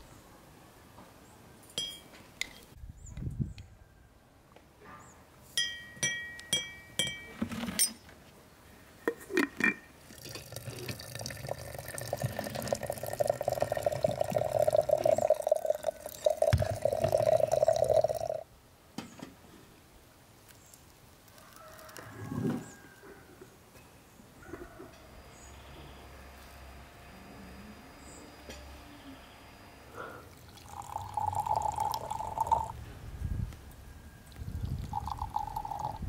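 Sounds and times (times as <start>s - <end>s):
water pouring into teapot: 10.0s - 18.4s, 30.3s - 32.8s, 34.6s - 36.0s.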